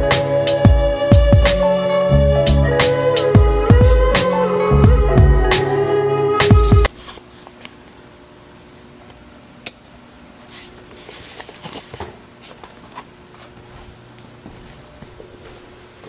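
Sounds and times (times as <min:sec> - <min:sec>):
low room hum: 0:06.1 - 0:16.0.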